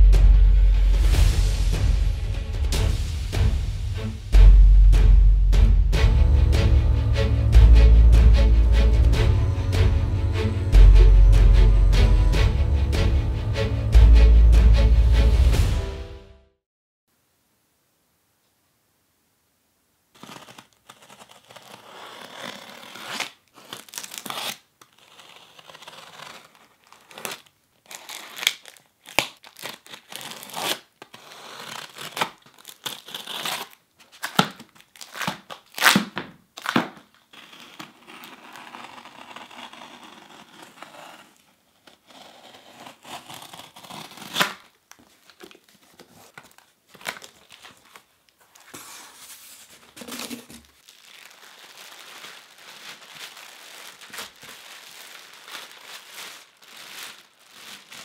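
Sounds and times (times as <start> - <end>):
plastic sheeting crinkling: 20.1 - 31.0, 43.3 - 58.0
box cutter slicing packing tape: 42.3 - 44.8.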